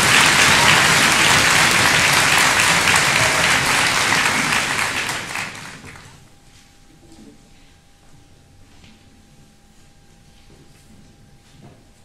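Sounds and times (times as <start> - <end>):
large audience applauding: 0.0 - 6.2.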